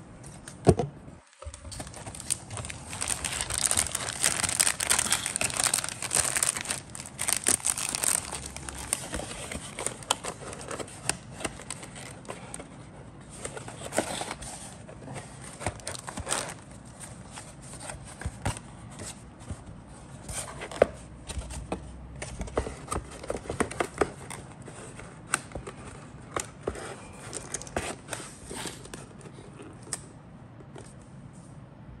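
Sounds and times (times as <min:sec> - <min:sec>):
plastic bags crinkling: 0:01.4 - 0:12.3, 0:15.7 - 0:16.6
cardboard box handled: 0:01.4 - 0:12.8.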